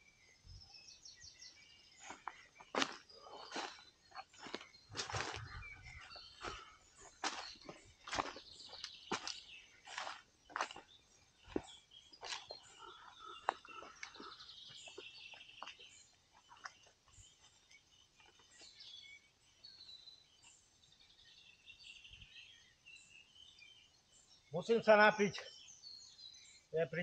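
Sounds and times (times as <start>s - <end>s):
songbirds chirping: 0.0s - 27.0s
footsteps crunching on dry leaves: 2.0s - 16.8s.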